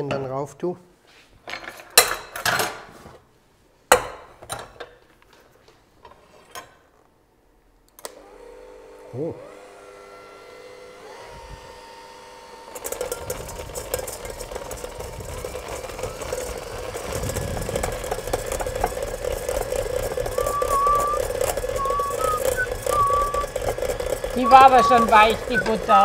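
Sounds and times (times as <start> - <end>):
electric hand mixer motor: 8.1 - 26.0
beaters ticking against metal bowl: 17.7 - 26.0.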